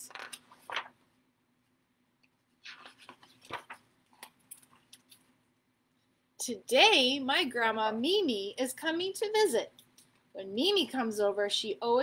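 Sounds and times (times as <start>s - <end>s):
book pages rustling: 0.0s - 1.1s, 2.5s - 5.4s
pages clicking: 0.1s - 1.0s, 2.6s - 5.3s.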